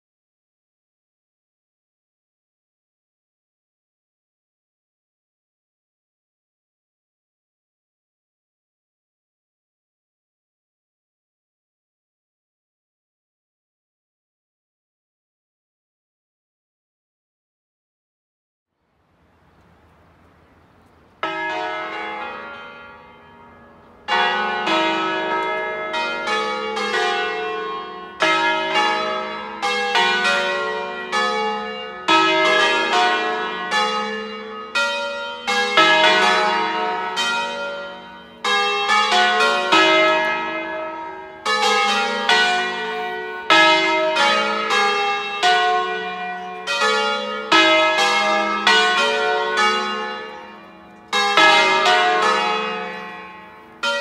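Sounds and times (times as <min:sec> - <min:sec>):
church bells pealing: 0:21.2 - 0:54.0.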